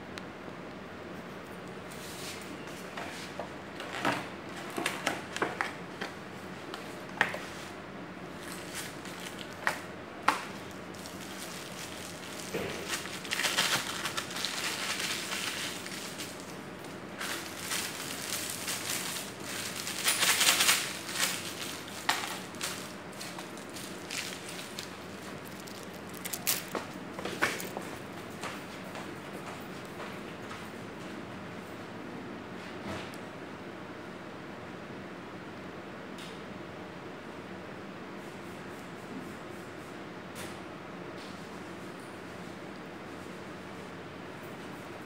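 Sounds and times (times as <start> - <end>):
plastic wrapping crinkling: 8.3 - 27.8.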